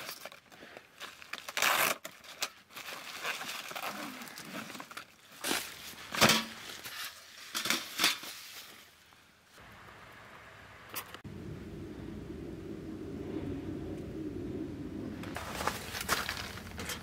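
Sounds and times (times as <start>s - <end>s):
plastic packaging crinkling: 0.0s - 5.9s.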